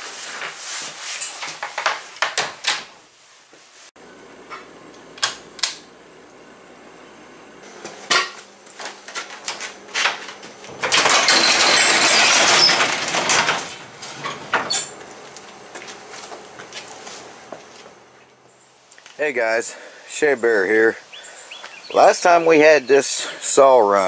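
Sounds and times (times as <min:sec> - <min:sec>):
metal garage door rattling: 0:10.0 - 0:15.0.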